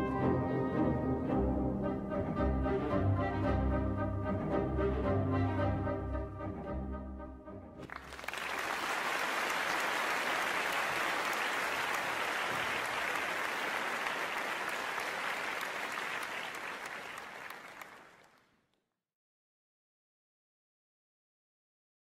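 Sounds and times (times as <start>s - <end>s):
orchestral chord: 0.0s - 7.8s
audience applause: 7.8s - 18.4s.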